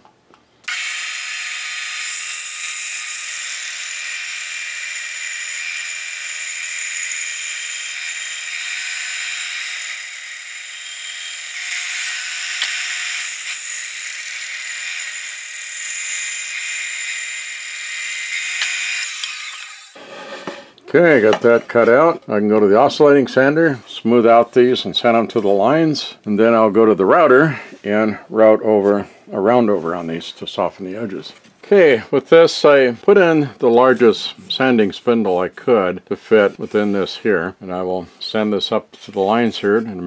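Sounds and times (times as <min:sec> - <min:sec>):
bandsaw cutting wood: 0:00.7 - 0:20.7.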